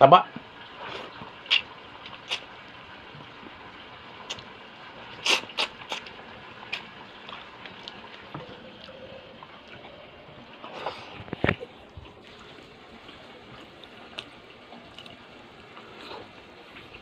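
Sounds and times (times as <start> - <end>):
wet chewing and lip smacks: 13.0 - 17.0.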